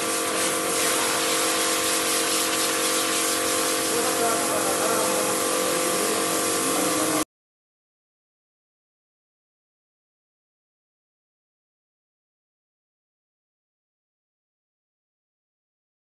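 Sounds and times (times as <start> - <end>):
pump motor hum: 0.0 - 7.2
water jet hissing: 0.0 - 7.2.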